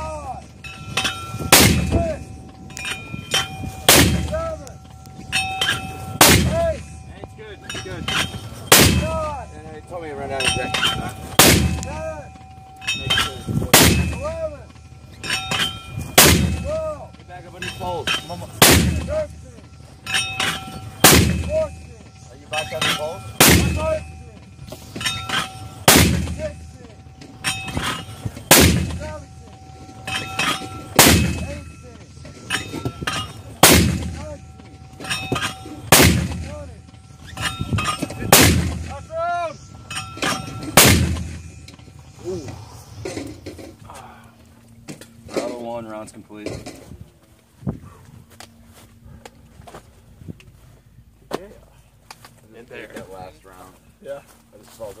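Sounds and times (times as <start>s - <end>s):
light metallic clinks: 0.0s - 47.1s
mortar firing: 1.2s - 2.3s, 3.8s - 4.7s, 5.6s - 7.0s, 8.0s - 9.4s, 10.4s - 12.2s, 13.2s - 14.4s, 15.6s - 16.8s, 18.1s - 19.4s, 20.4s - 21.9s, 22.6s - 26.8s, 27.6s - 29.4s, 30.1s - 31.8s, 32.4s - 39.1s, 40.2s - 42.6s.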